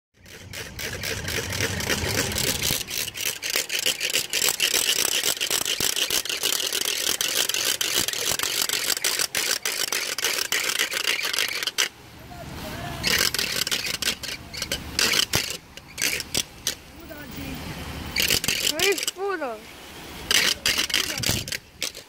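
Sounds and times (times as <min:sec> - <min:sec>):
ratchet rattle clattering: 0:00.2 - 0:11.9, 0:13.0 - 0:16.8, 0:18.2 - 0:19.2, 0:20.3 - 0:22.0.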